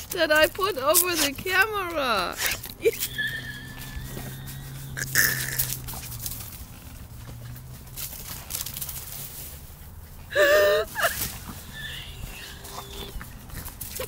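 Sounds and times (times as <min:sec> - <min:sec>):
dog yelping: 0:02.4 - 0:06.1, 0:11.0 - 0:14.0.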